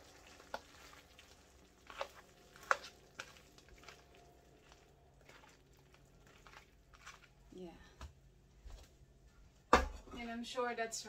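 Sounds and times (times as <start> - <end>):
spoon stirring in sauce: 0.0 - 7.5.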